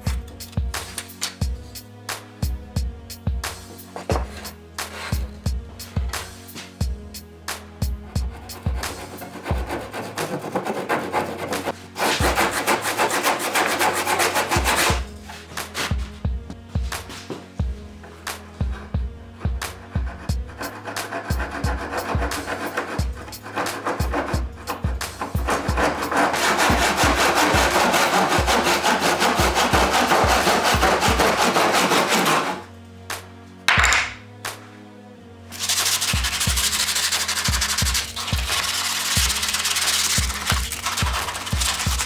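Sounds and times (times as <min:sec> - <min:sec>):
hand saw cutting wood: 0:07.9 - 0:16.0, 0:18.6 - 0:32.7, 0:35.5 - 0:42.0.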